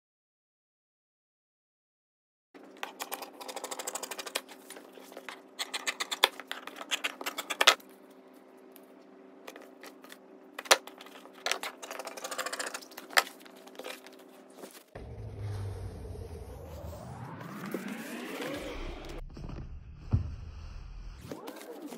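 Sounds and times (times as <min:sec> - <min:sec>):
steady hum: 0:02.6 - 0:21.9
low rumble with rising whine: 0:15.0 - 0:21.3.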